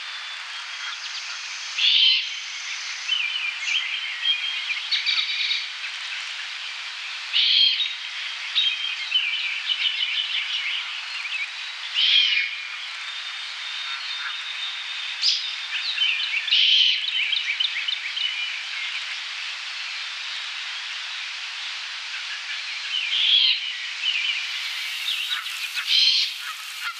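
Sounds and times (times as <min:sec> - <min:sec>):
songbirds chirping: 0:22.3 - 0:26.9
young owl hissing screech: 0:24.4 - 0:26.9.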